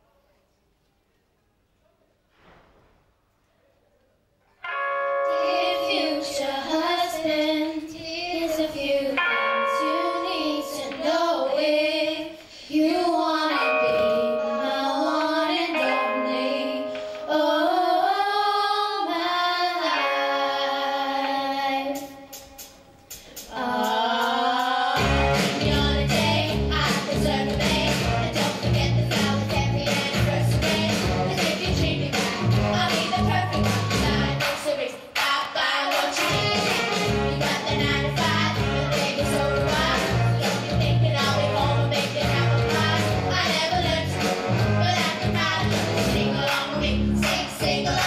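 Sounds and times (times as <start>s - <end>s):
girls singing together: 5.2s - 48.0s
heavy bass beat: 25.0s - 34.5s.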